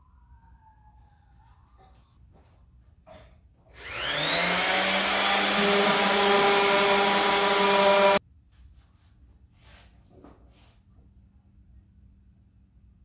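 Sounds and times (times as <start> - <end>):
power tool motor whine: 3.8 - 8.2.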